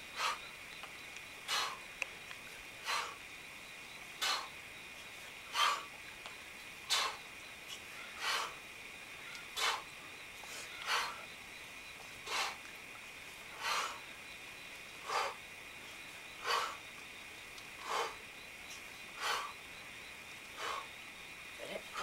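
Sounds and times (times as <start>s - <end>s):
sharp forceful exhales: 6.9s - 7.2s, 12.3s - 12.6s.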